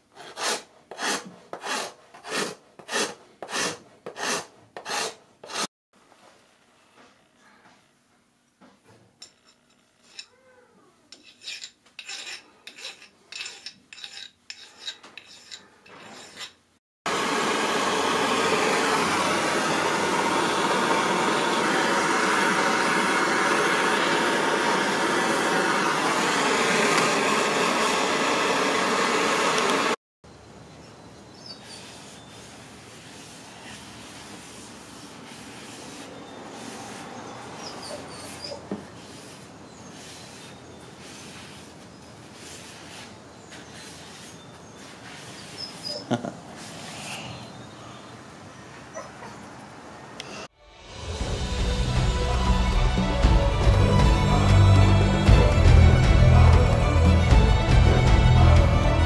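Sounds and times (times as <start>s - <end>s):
wood scraping by hand: 0.2s - 5.7s, 11.2s - 16.6s, 31.7s - 37.1s, 38.2s - 46.0s
light rubbing: 11.1s - 16.7s
torch hissing: 17.1s - 30.0s.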